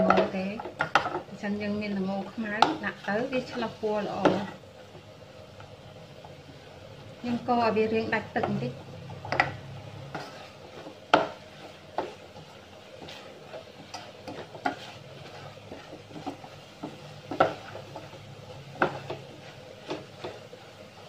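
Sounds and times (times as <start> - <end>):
spatula scraping saucepan: 8.4 - 21.0
spatula knocking pot side: 11.1 - 11.4, 15.7 - 18.1, 18.7 - 20.4.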